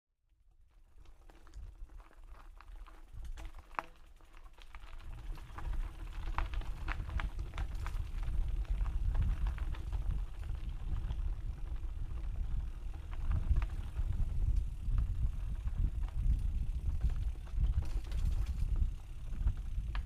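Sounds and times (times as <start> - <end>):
bike clicks and rattles: 0.7 - 20.0
wind on microphone: 5.6 - 20.0.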